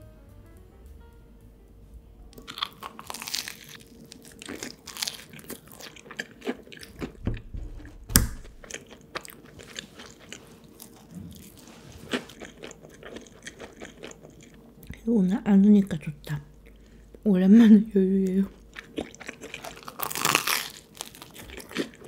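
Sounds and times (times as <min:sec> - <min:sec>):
chewing crunchy bread: 0:02.3 - 0:07.2, 0:08.4 - 0:15.0, 0:18.5 - 0:22.0.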